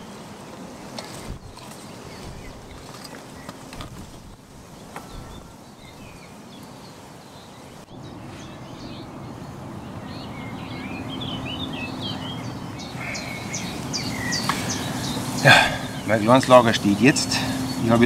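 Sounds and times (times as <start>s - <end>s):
outdoor background noise: 0.0s - 18.0s
small birds chirping: 0.0s - 18.0s.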